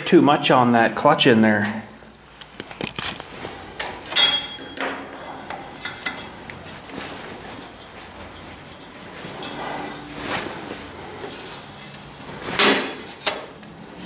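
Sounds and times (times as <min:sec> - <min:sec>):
metal parts and tools clinking: 0:03.8 - 0:06.3.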